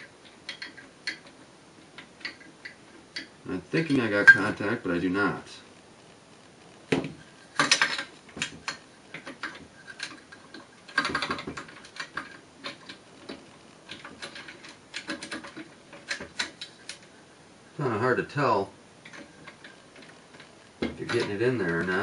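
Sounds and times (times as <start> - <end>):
metal parts clattering: 7.6 - 17.0.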